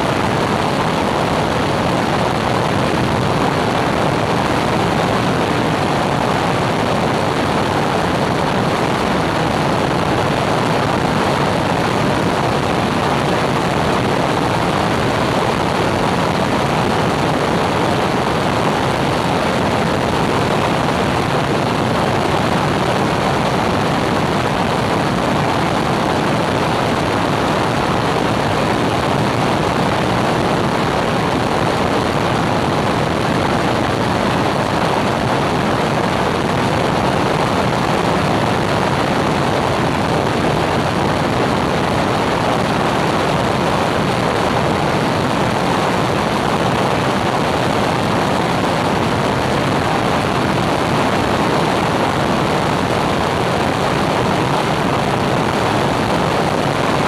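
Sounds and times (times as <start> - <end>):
airplane engine and propeller drone: 0.0 - 57.0.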